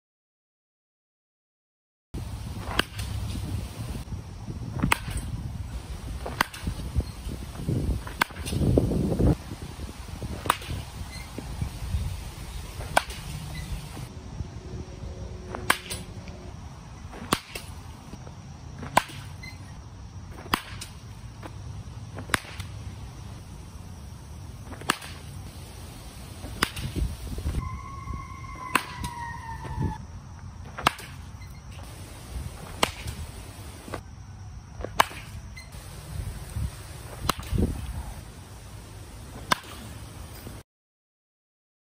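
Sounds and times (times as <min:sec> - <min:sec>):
baseball bat cracking ball: 0:02.7 - 0:03.1, 0:06.2 - 0:06.7, 0:08.0 - 0:08.6, 0:12.8 - 0:13.3, 0:15.5 - 0:16.1, 0:17.1 - 0:17.8, 0:18.8 - 0:19.4, 0:20.4 - 0:21.1, 0:22.2 - 0:22.7, 0:24.7 - 0:25.3, 0:26.4 - 0:27.0, 0:28.6 - 0:29.1, 0:30.7 - 0:31.2, 0:32.6 - 0:33.2, 0:34.8 - 0:35.4, 0:37.2 - 0:37.6, 0:39.4 - 0:39.9.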